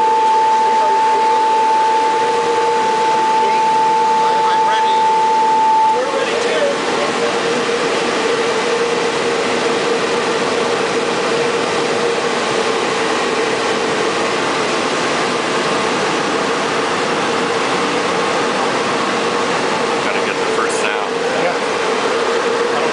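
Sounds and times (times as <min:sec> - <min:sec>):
cooling blowers rushing air: 0:00.0 - 0:22.9
mid-pitched hum: 0:00.0 - 0:22.9.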